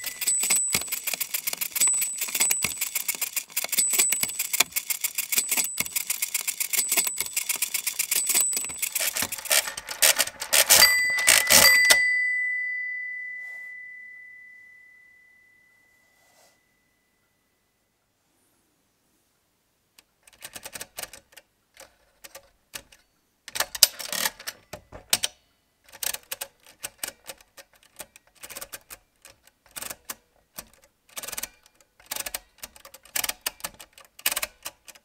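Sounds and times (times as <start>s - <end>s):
mechanical calculator levers clicking: 0.0s - 12.1s, 22.2s - 35.0s.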